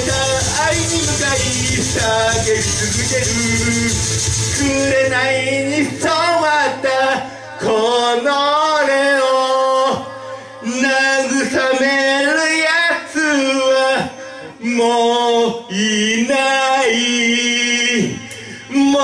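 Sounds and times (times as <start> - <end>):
acoustic guitar: 0.0 - 8.2
man singing rock song: 0.0 - 19.0.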